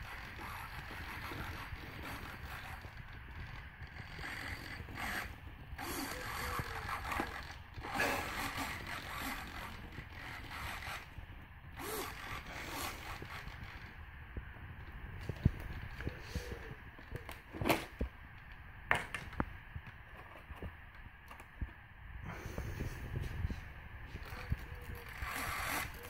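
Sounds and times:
small servos whirring: 0.0s - 14.1s, 24.1s - 26.0s.

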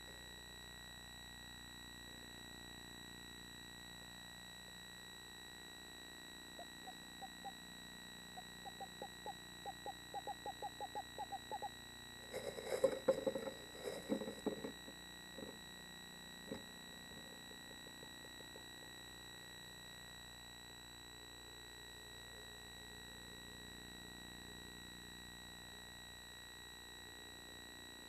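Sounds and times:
screech owl hooting: 6.6s - 11.8s
owls scuffling: 8.4s - 15.6s.

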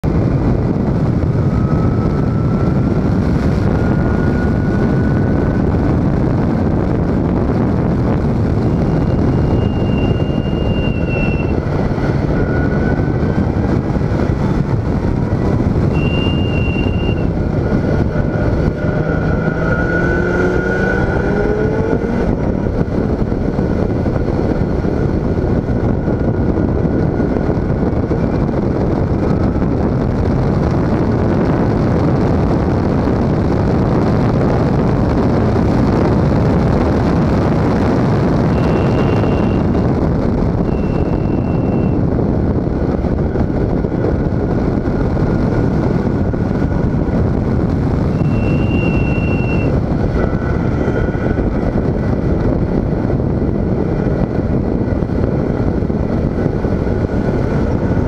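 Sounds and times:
wind rush: 0.0s - 58.0s
short steady whistling tone: 9.1s - 11.6s, 16.0s - 17.3s, 38.5s - 39.8s, 40.7s - 42.0s, 48.2s - 49.8s
race car engine revving: 16.0s - 22.6s.

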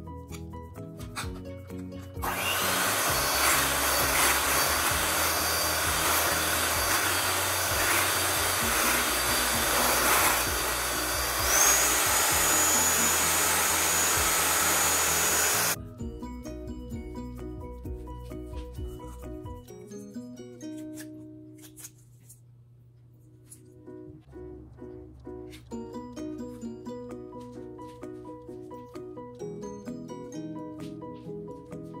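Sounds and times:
soft background music: 0.0s - 32.0s
electric hand mixer whirring: 2.2s - 15.8s.

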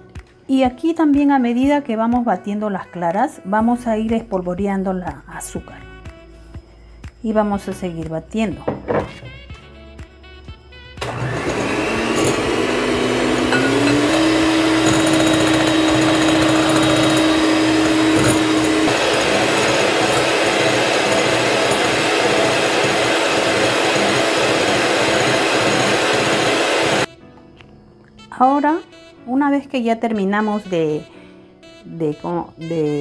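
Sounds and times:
electric hand mixer whipping: 11.0s - 27.1s.

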